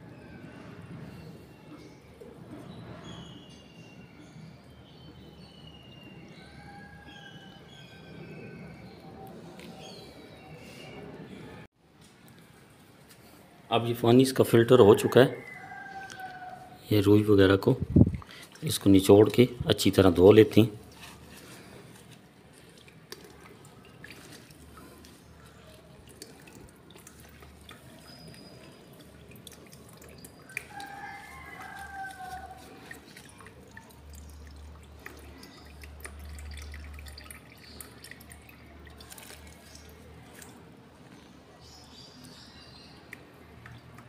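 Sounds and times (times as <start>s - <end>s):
wet cotton squelching: 18.0s - 40.6s
liquid dripping and trickling: 18.0s - 44.0s.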